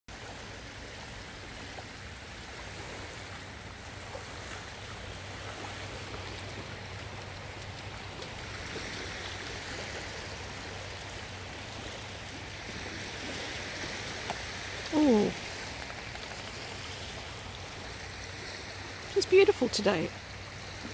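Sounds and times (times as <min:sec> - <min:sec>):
sea water lapping at shore: 0:00.1 - 0:20.9.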